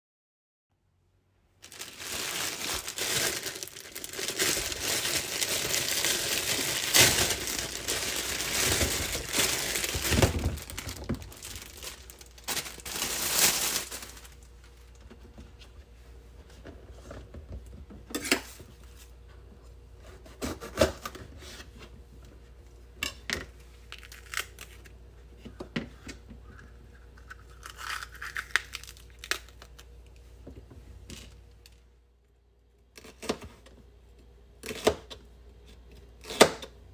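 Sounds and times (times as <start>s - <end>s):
plastic bag crinkling and tearing: 1.6s - 14.6s, 23.9s - 24.9s, 27.5s - 30.0s.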